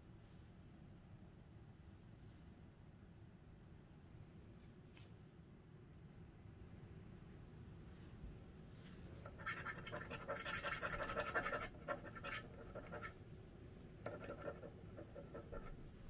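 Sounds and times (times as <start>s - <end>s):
scratching lottery ticket coating: 9.2s - 13.2s, 14.0s - 16.0s.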